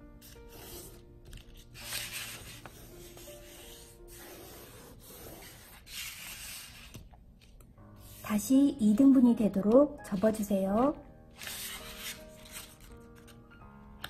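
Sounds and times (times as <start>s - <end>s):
soft background music: 0.0s - 14.0s
paper swishes: 0.2s - 7.0s, 11.4s - 13.4s.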